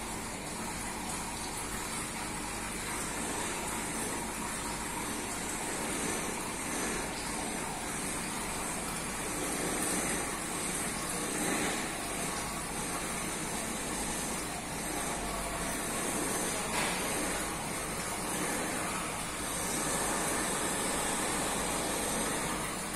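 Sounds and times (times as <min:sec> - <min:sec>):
aquarium water rushing: 0:00.0 - 0:22.9.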